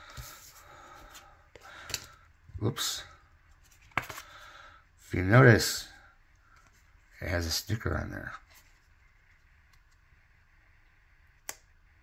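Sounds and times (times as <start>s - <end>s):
cards sliding and rubbing: 3.5s - 4.4s.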